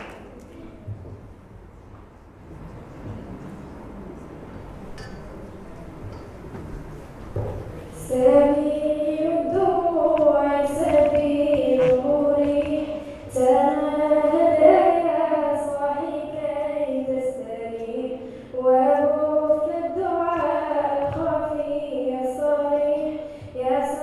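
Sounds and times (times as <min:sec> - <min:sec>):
girl singing into microphone: 0:07.9 - 0:24.0.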